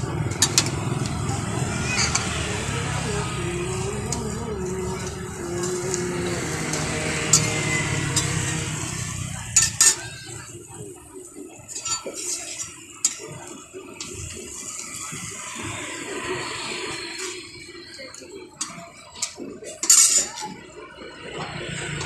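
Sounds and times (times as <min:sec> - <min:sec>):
metal spatula scraping griddle: 0:00.0 - 0:10.4.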